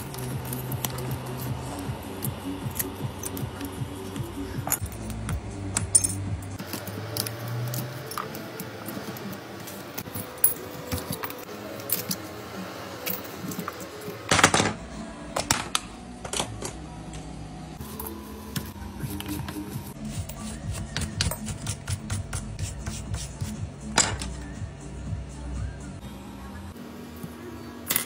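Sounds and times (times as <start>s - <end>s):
background music: 0.0s - 28.0s
glass shards clicking and scraping: 5.8s - 12.2s.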